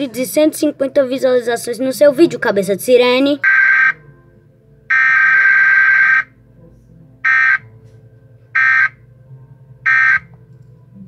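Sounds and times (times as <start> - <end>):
electronic buzzer beeping: 3.4 - 4.0, 4.9 - 6.3, 7.3 - 7.6, 8.6 - 9.0, 9.9 - 10.3.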